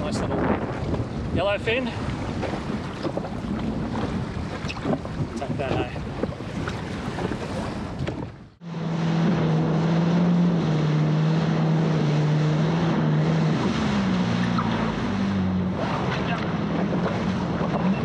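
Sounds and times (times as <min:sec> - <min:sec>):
wind buffeting microphone: 0:00.0 - 0:08.6
water rushing past hull: 0:00.0 - 0:18.0
jet ski engine running: 0:00.1 - 0:18.0.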